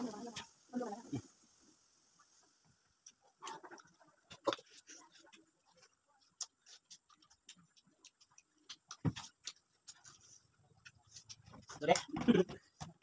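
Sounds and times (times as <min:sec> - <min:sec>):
people eating wet smacks: 0:03.0 - 0:13.0.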